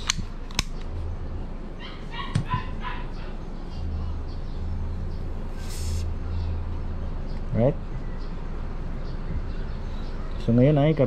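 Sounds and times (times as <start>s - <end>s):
plastic pistol clicks: 0.0s - 0.9s
small dog yapping: 1.8s - 3.4s.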